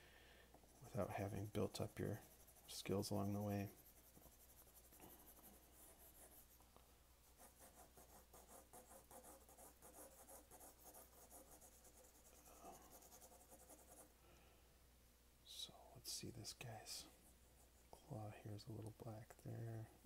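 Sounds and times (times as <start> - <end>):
pencil scratching on paper: 0.7 - 6.6, 7.2 - 14.1.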